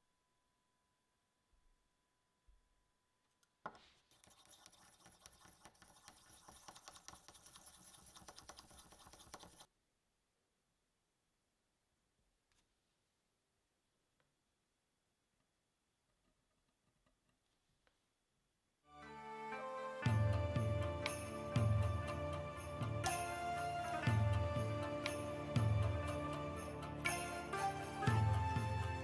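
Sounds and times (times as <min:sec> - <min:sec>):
stick scraping metal paint tin: 0:04.1 - 0:09.7.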